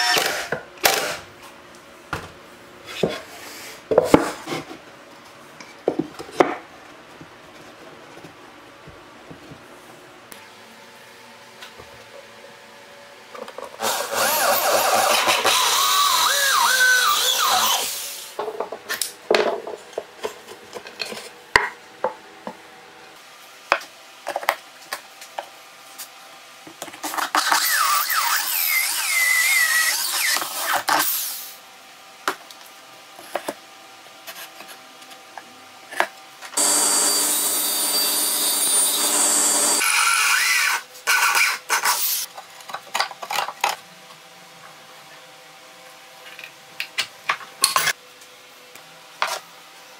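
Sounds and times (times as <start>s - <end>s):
power drill boring into wood: 13.8s - 18.2s, 36.6s - 40.8s.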